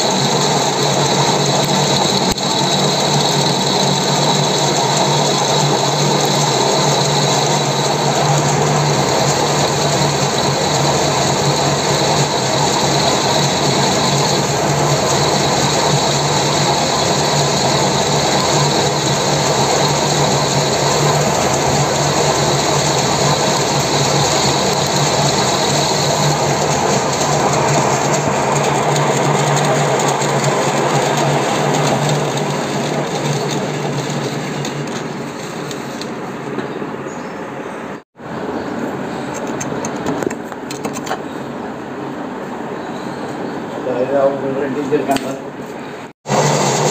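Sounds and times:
metal lathe humming: 0:00.0 - 0:36.1, 0:46.2 - 0:46.9.

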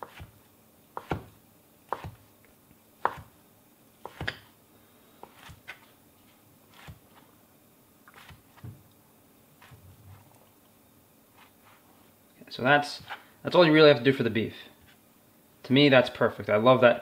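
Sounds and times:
knife chopping meat: 0:01.0 - 0:01.3, 0:01.9 - 0:02.2, 0:03.0 - 0:03.3, 0:04.0 - 0:04.5.

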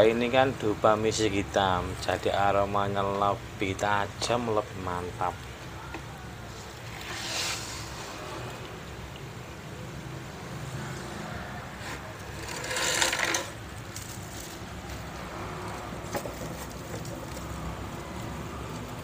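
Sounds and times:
bamboo sticks rustling and clattering: 0:11.8 - 0:19.0.

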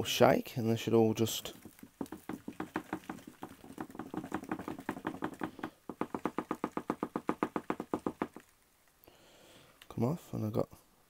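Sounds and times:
cardboard egg crate knocking on tub: 0:01.5 - 0:08.4.

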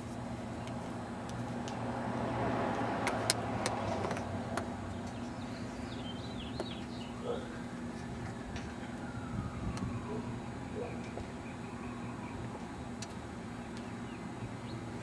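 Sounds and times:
steady low hum: 0:00.0 - 0:15.0
vehicle passing: 0:01.0 - 0:07.6
bird chirps: 0:04.9 - 0:07.6.

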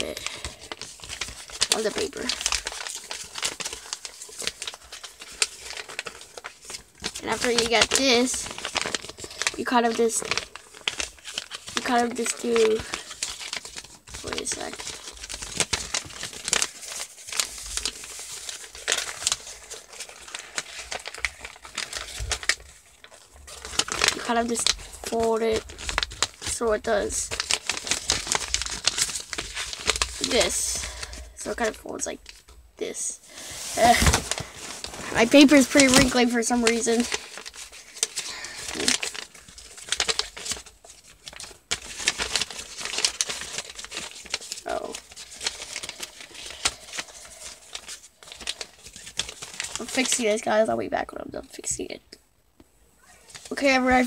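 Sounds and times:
paper rustling and crinkling: 0:00.0 - 0:50.6, 0:53.0 - 0:54.0.

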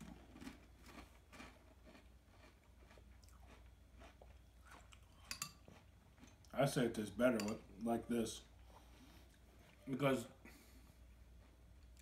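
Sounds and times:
chewing crunchy food: 0:00.0 - 0:07.0, 0:10.5 - 0:12.0.

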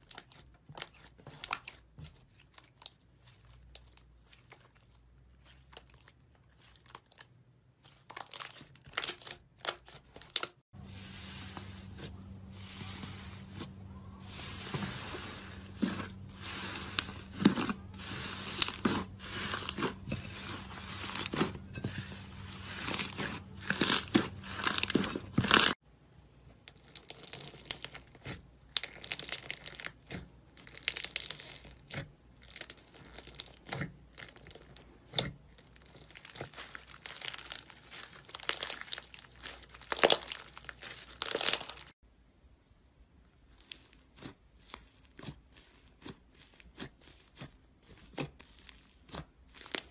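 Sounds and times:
crunchy crackles of bead slime: 0:00.0 - 0:25.8, 0:26.6 - 0:42.0, 0:43.4 - 0:49.9
slime crackling and popping: 0:26.7 - 0:41.9.

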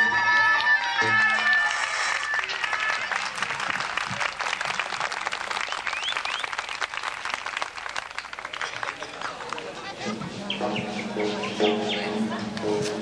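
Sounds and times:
music: 0:00.0 - 0:02.8, 0:09.9 - 0:13.0
audience applauding: 0:00.0 - 0:09.9
rising whistle-like chirps: 0:05.6 - 0:06.5.

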